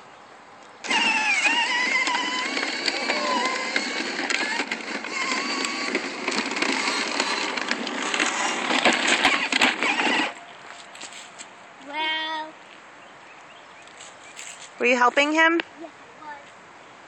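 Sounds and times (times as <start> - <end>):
plastic wheels clicking: 0.8 - 10.4
toy electric motor whining: 0.8 - 10.4.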